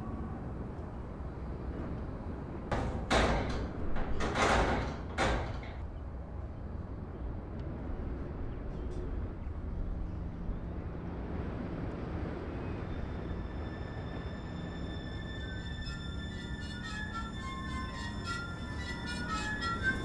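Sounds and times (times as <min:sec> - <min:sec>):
low background hum: 0:00.0 - 0:20.0
metal grille door rattling: 0:02.7 - 0:05.8.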